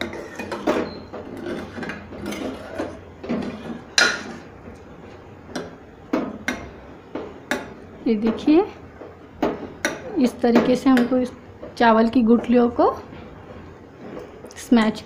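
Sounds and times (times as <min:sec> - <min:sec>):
spoon scraping a steel pan: 0:00.0 - 0:04.5.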